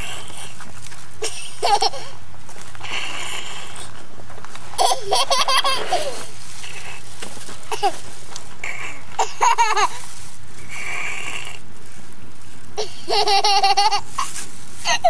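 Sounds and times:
young child laughing: 1.2 - 2.2, 4.8 - 6.3, 9.2 - 10.1, 12.8 - 15.0.

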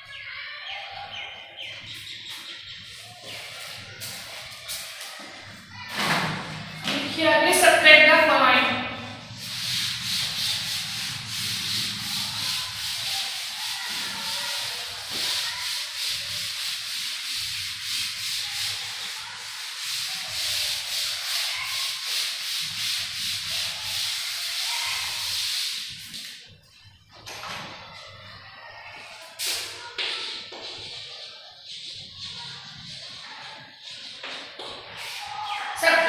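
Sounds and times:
duster rubbing chalkboard: 6.4 - 26.4, 29.4 - 35.7.

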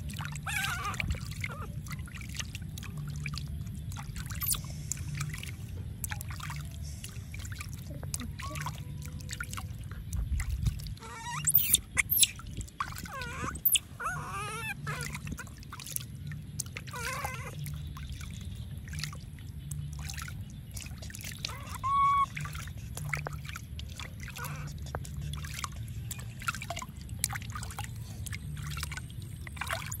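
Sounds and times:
water splashing in a basin: 0.0 - 30.0
high wavering animal squeaks: 0.3 - 1.7, 4.4 - 4.6, 10.9 - 15.5, 16.9 - 17.7, 21.4 - 22.4, 24.3 - 24.9.

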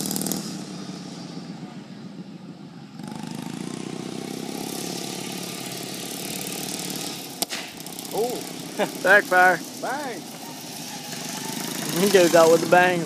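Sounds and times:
racing mower engine droning: 0.0 - 13.0.

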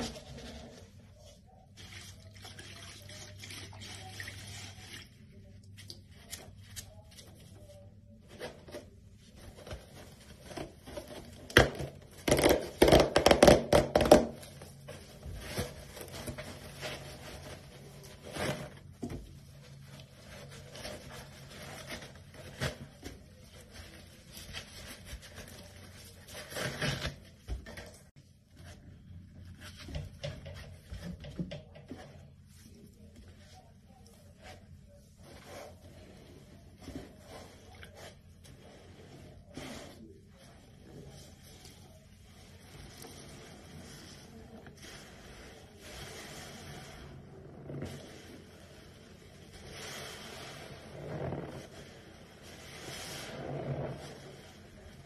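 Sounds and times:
soapy water splashing in basin: 1.7 - 6.2, 42.3 - 55.0.

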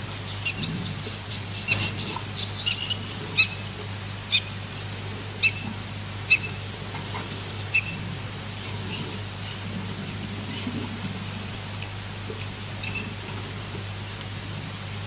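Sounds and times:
background hiss: 0.0 - 15.0
bird chirping: 0.3 - 3.6, 7.7 - 8.0.

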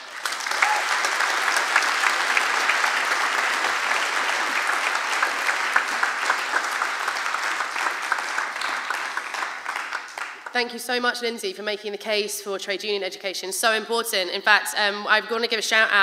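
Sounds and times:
audience applause: 0.0 - 10.6.

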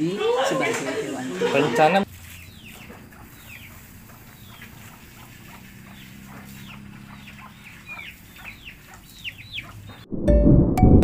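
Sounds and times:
birds chirping: 2.0 - 10.1.

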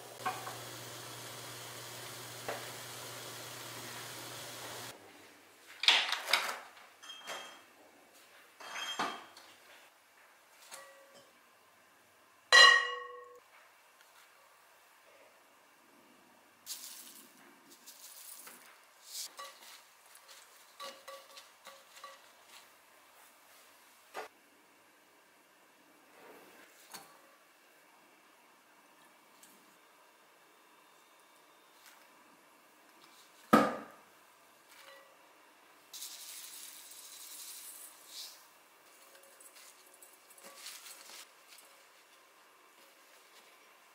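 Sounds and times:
glass bowl clinking: 12.6 - 13.4
seeds pouring hiss: 16.7 - 19.3, 35.9 - 38.5
faint rustling of hand mixing: 16.7 - 24.0, 35.9 - 43.9.

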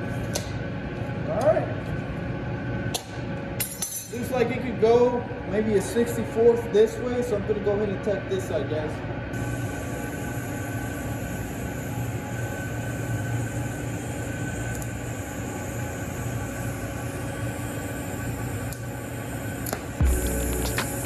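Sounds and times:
low hum: 0.0 - 21.0
welding arc hissing: 9.4 - 21.0.

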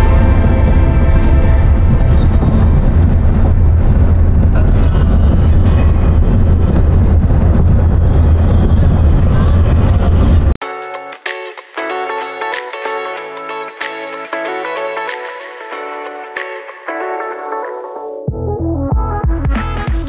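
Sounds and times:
car engine: 0.0 - 10.6.

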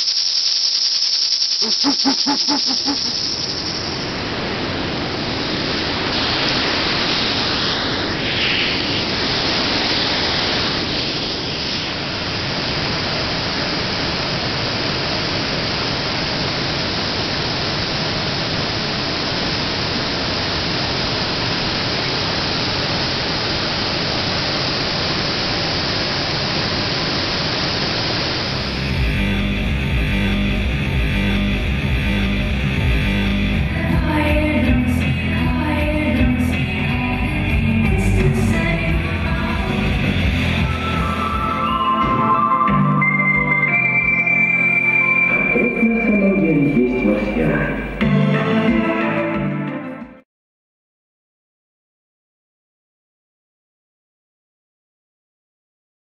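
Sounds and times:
short high hiss: 0.0 - 4.3.

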